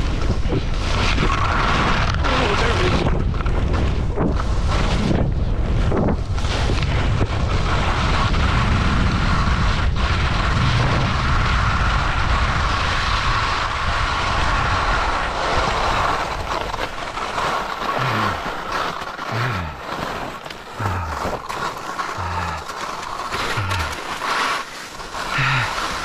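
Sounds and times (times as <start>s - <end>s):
wind rushing over microphone: 0.0s - 16.7s
skis scraping over crusted snow: 0.0s - 26.0s.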